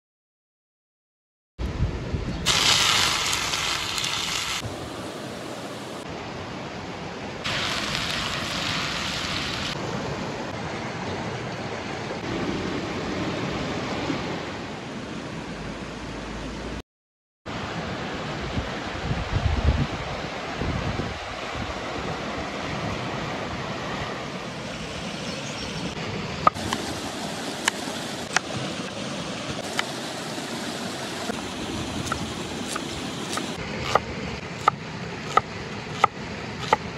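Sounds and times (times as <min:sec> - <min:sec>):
river water rushing: 0:02.5 - 0:10.4, 0:21.2 - 0:36.9.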